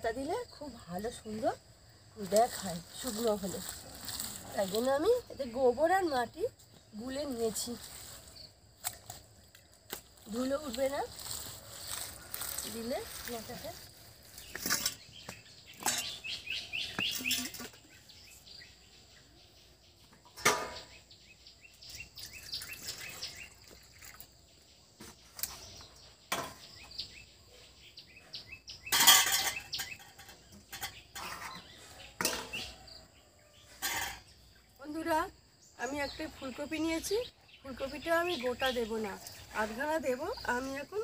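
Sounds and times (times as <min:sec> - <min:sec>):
small birds chirping: 0:00.0 - 0:41.0.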